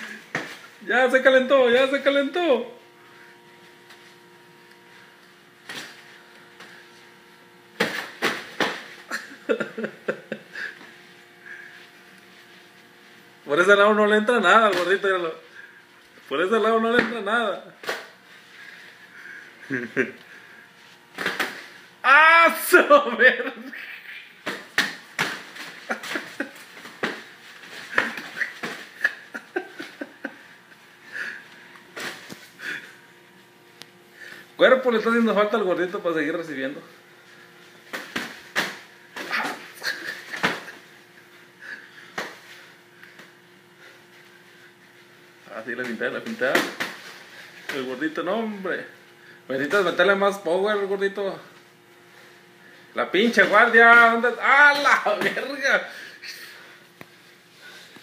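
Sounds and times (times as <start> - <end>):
faint steady hum: 0.0 - 58.0
heavy breathing: 31.0 - 31.7.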